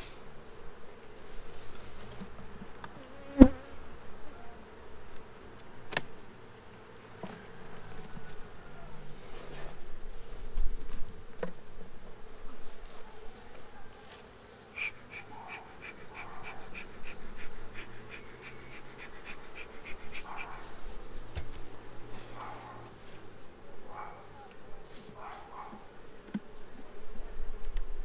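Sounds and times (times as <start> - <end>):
bees buzzing: 0.0 - 12.6, 14.2 - 23.8.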